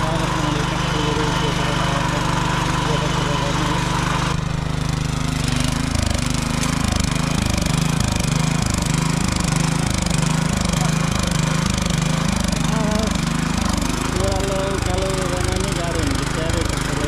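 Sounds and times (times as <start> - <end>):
tiller engine pulsing: 0.0 - 17.0.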